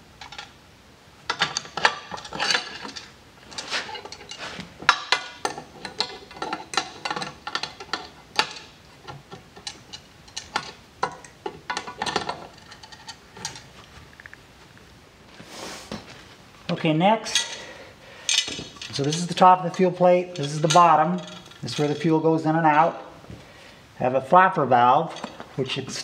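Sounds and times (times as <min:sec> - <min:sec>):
wrench clinking on metal fitting: 0:18.3 - 0:22.1.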